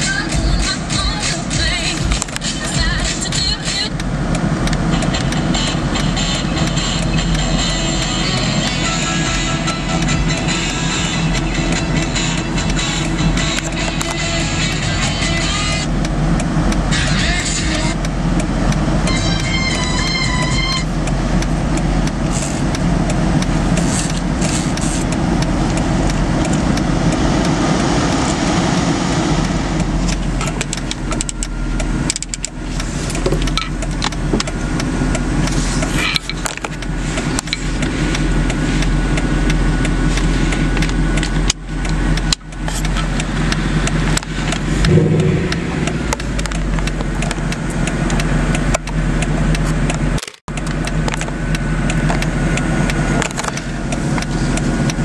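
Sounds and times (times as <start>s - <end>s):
car cabin engine drone: 0.0s - 55.0s
clicks and rustles near microphone: 30.0s - 55.0s.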